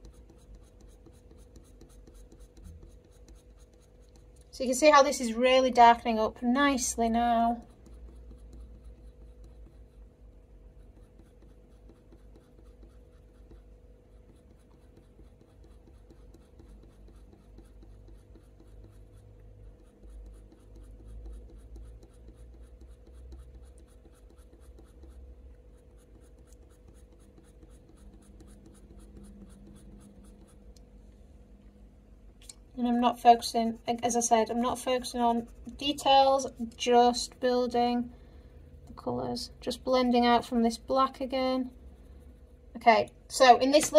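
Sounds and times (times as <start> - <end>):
pencil scratching on paper: 0.0 - 30.7, 33.0 - 37.9, 39.6 - 42.9.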